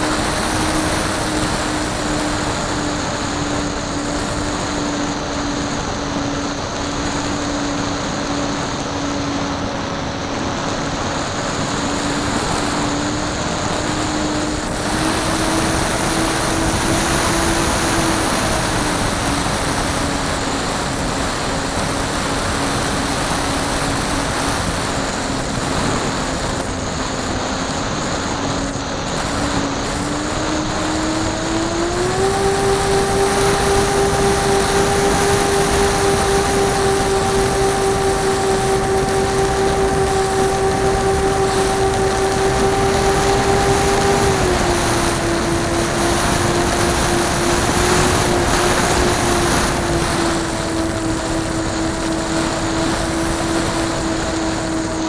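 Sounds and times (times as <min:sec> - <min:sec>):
model airplane motor droning: 0:00.0 - 0:55.0
wind rushing over microphone: 0:00.0 - 0:55.0.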